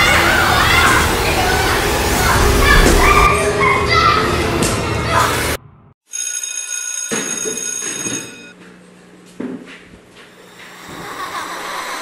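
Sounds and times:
low hum: 0:00.2 - 0:05.9.

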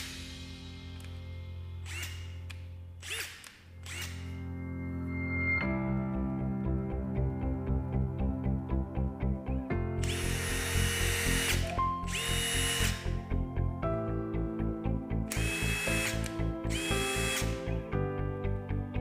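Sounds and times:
impact driver motor whine: 0:01.8 - 0:04.4, 0:10.0 - 0:13.2, 0:15.3 - 0:17.6.

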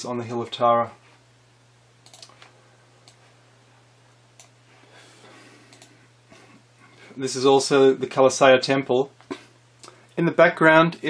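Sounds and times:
low steady hum: 0:00.0 - 0:11.0
computer clicks: 0:02.0 - 0:03.2, 0:04.4 - 0:04.6, 0:05.7 - 0:06.0.

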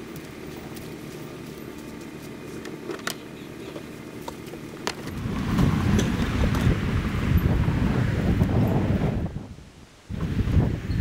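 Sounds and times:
wind buffeting microphone: 0:04.9 - 0:11.0.

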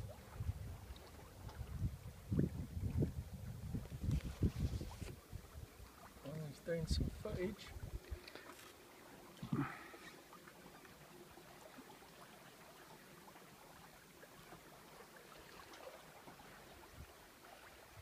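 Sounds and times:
water trickling along hull: 0:00.0 - 0:18.0.

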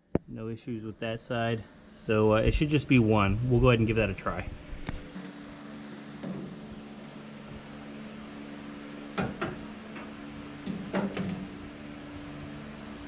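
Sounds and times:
steady mechanical hum: 0:00.0 - 0:13.0
knocks and clunks of parts: 0:09.2 - 0:11.5.

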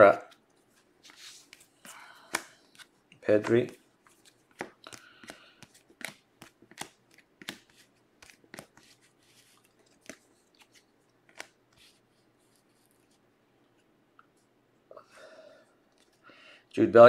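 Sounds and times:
trading cards flicking and sliding: 0:00.3 - 0:13.2.

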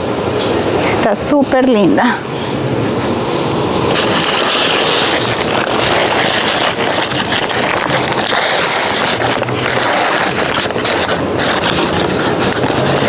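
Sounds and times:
paper wrapping crinkling: 0:03.8 - 0:13.0.

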